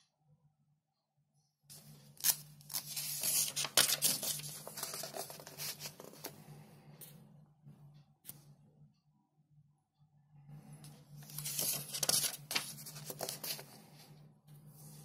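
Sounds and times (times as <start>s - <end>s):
paper pages rustling: 1.7s - 6.4s, 11.2s - 14.1s.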